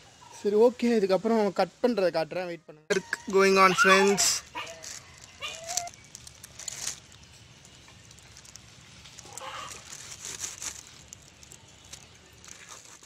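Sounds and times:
low background hum: 0.0s - 13.0s
plastic sheet rustling: 3.3s - 13.0s.

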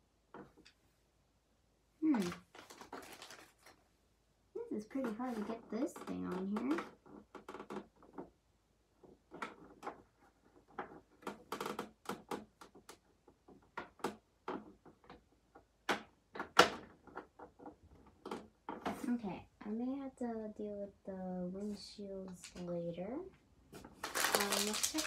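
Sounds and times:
hard plastic clicking and knocking: 9.0s - 19.0s.

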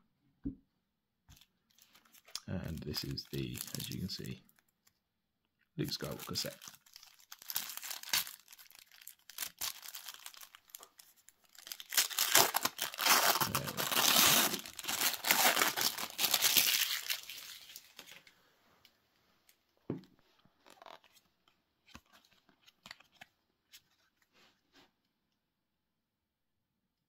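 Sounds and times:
wrapping crinkling and tearing: 1.3s - 4.9s, 5.8s - 18.3s, 20.6s - 24.2s.

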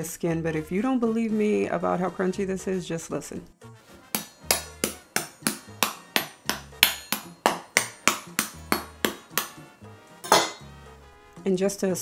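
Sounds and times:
knife tapping on crisp skin: 4.2s - 9.6s.

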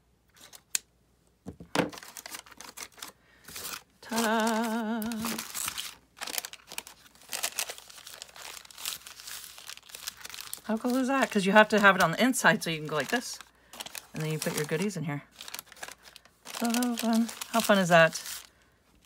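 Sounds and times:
paper bag rustling and crinkling: 1.7s - 19.0s
person humming: 4.0s - 5.6s.

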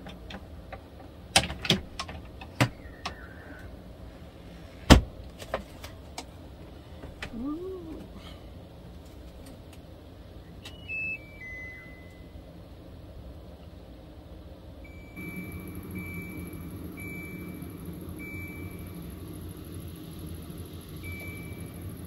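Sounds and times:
low steady hum: 0.0s - 22.0s
electronic beeps: 10.6s - 12.4s, 14.9s - 19.5s, 20.1s - 22.0s.

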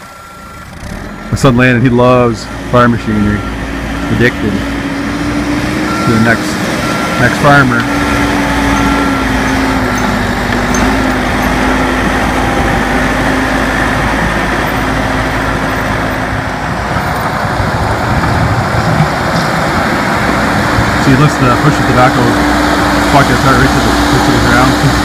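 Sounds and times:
diesel engine running under load: 0.0s - 25.0s
repeated beep: 0.2s - 1.7s, 8.5s - 12.6s.

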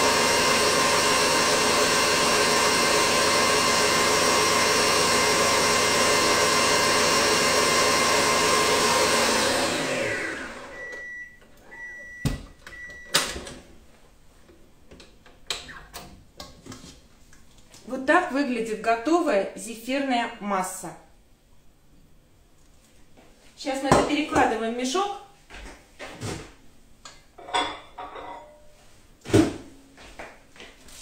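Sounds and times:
stand mixer motor running: 0.0s - 10.8s.

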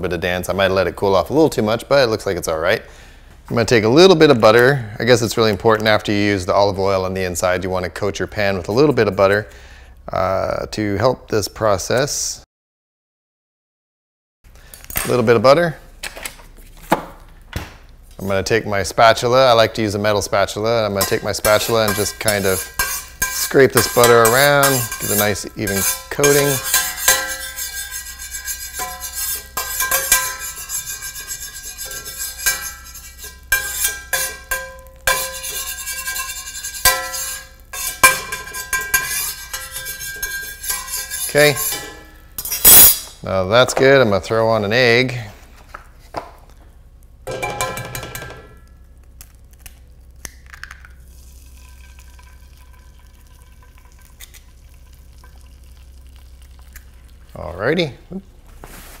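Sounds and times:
metal spatula scraping skillet: 21.0s - 43.1s.

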